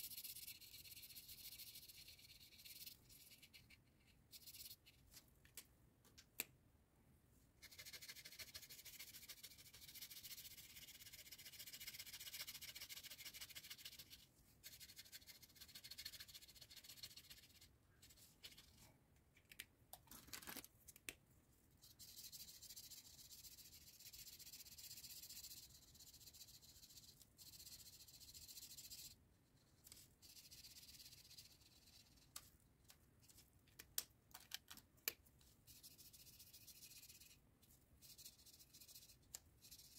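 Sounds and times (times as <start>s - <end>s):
felt-tip marker scratching on paper: 0.0s - 5.0s, 7.6s - 17.6s, 38.0s - 39.9s.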